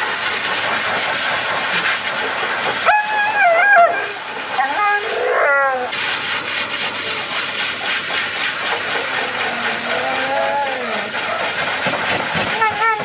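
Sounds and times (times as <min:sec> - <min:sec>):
dog whining and howling: 0:02.8 - 0:05.9, 0:09.2 - 0:11.2
steady rasping hiss: 0:04.3 - 0:13.0.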